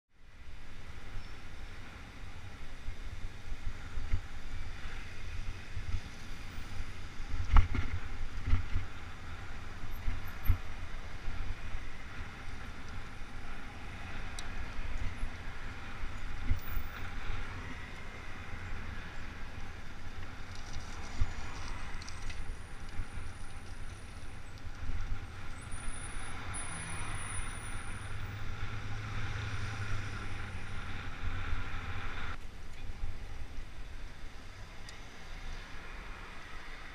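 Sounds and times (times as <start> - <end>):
bicycle riding noise: 0.3 - 36.9.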